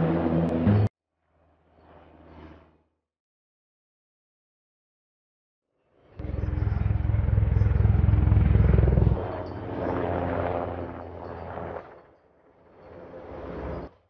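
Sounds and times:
helicopter flying overhead: 0:00.0 - 0:02.9, 0:05.8 - 0:14.0.

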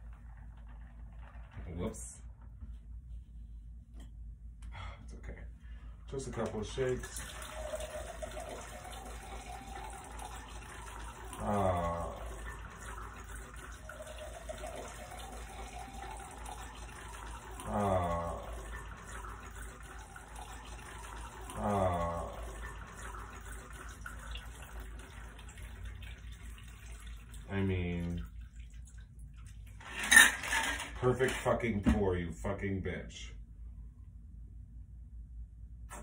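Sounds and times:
liquid pouring into glass: 0:06.8 - 0:30.2.

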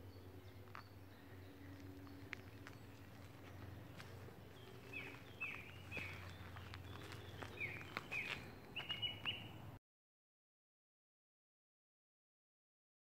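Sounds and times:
bird chirping: 0:00.0 - 0:09.7.

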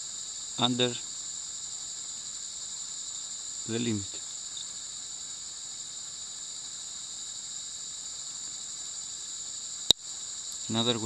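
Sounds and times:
high-pitched insect buzzing: 0:00.0 - 0:11.0.

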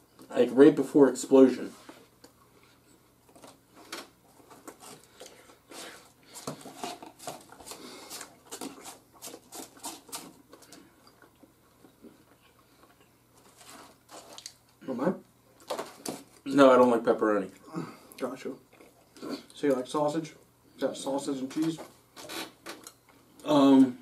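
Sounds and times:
crunching and chewing: 0:03.2 - 0:14.8, 0:18.2 - 0:19.6.

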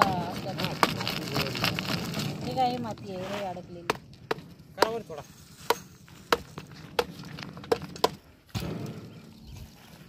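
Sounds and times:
rough scraping noise: 0:00.0 - 0:03.8, 0:05.0 - 0:10.0
sharp hollow knocks: 0:03.8 - 0:09.4.

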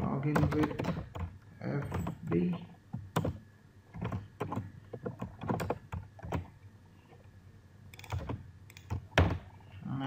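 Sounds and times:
keyboard keys clicking: 0:00.3 - 0:03.4.

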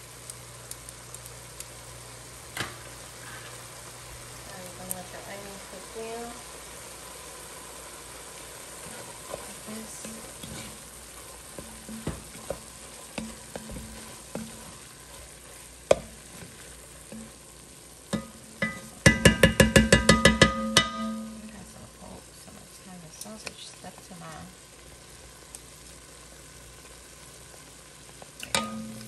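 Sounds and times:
sausage and onion sizzling: 0:00.0 - 0:29.0
wooden spoon stirring in pot: 0:02.9 - 0:24.1
spoon tapping pot: 0:11.6 - 0:14.8, 0:15.9 - 0:16.2, 0:18.1 - 0:21.5, 0:28.4 - 0:29.0.

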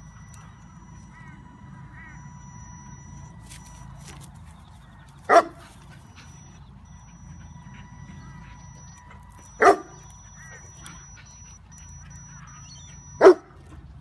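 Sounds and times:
faint high whine: 0:00.0 - 0:13.8
dog barking: 0:05.3 - 0:05.7, 0:09.5 - 0:10.0, 0:13.2 - 0:13.6.

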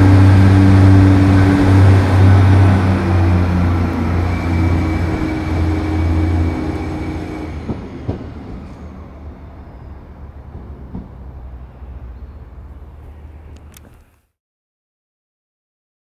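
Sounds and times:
diesel train engine pulling away: 0:00.0 - 0:14.0
faint clicks: 0:13.5 - 0:14.3.

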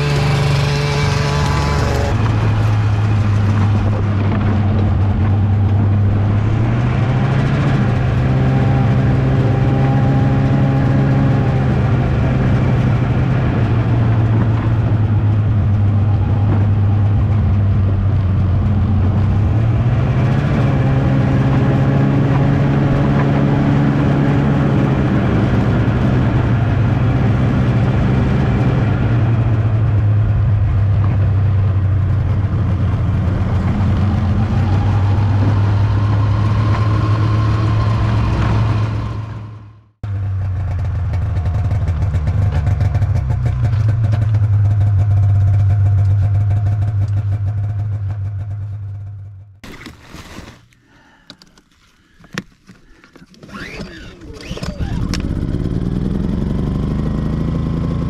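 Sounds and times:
snowmobile engine revving: 0:00.0 - 0:39.8, 0:53.3 - 0:58.0.

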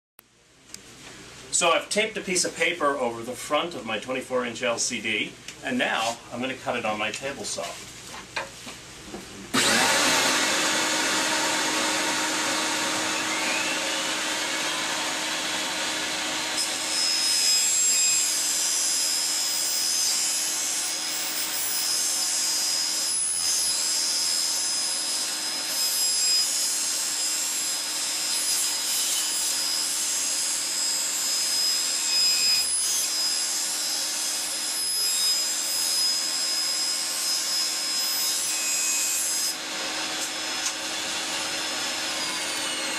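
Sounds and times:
high steady saw whine: 0:09.5 - 0:42.9
table saw running: 0:09.5 - 0:42.9.

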